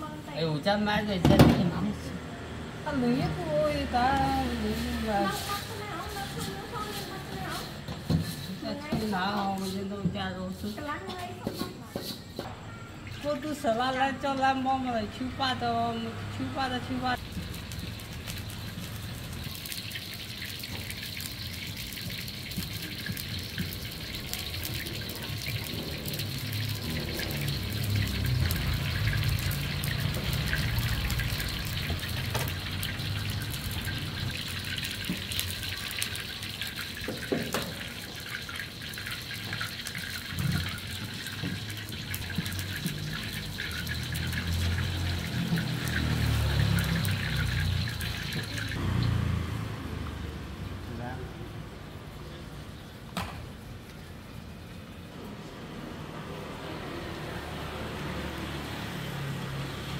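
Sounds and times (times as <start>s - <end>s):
gas burner hissing and rumbling: 0.0s - 12.5s, 14.8s - 49.0s.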